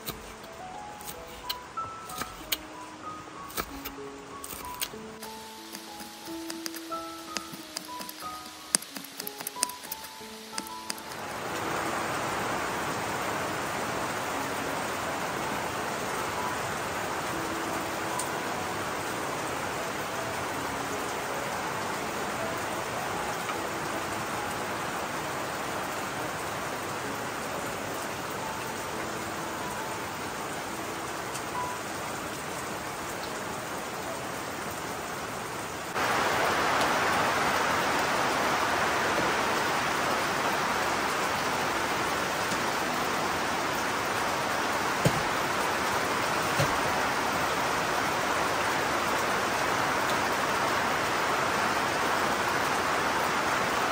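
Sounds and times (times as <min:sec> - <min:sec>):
steady rain falling: 0:00.0 - 0:53.9
light knocks: 0:45.0 - 0:45.4, 0:46.5 - 0:46.8.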